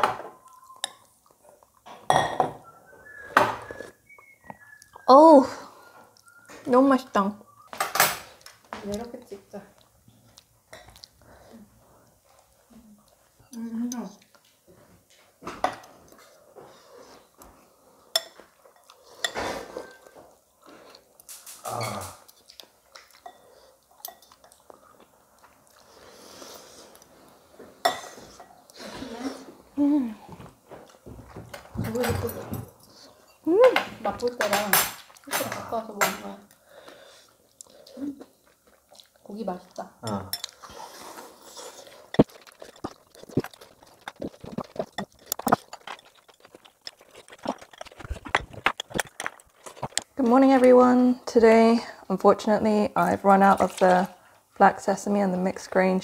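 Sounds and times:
person chewing: 0:00.4 - 0:01.9, 0:09.8 - 0:14.6, 0:15.8 - 0:28.9, 0:36.5 - 0:50.2.

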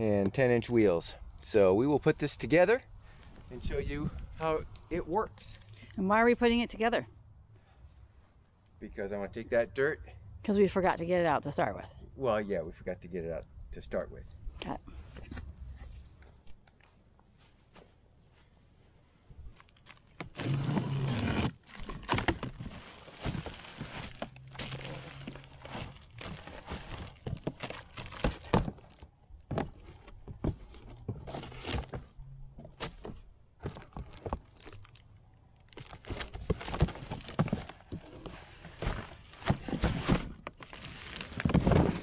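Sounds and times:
cardboard box knocks and scrapes: 0:41.1 - 0:42.0.

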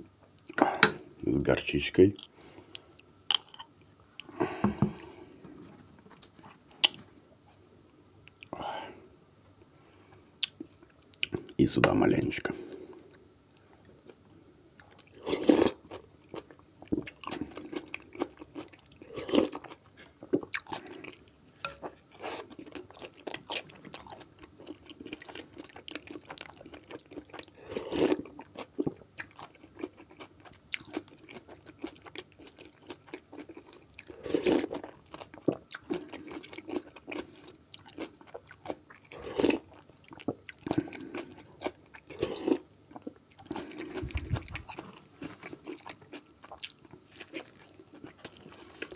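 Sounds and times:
person chewing: 0:14.8 - 0:48.9
slurping soup: 0:39.1 - 0:39.7.

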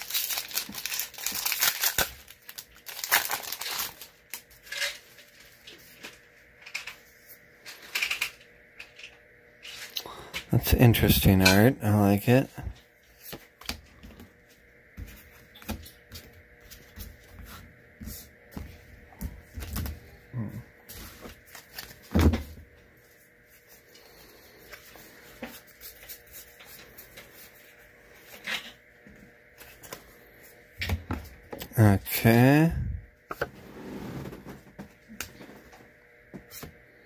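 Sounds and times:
cards being handled and flipped: 0:21.0 - 0:22.1.

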